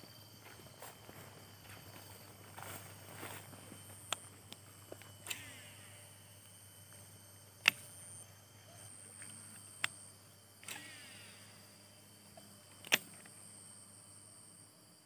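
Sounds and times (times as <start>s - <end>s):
faint outdoor background: 0.0s - 15.0s
sharp clicks: 4.1s - 7.0s, 7.6s - 8.0s, 9.2s - 11.2s, 12.3s - 13.4s.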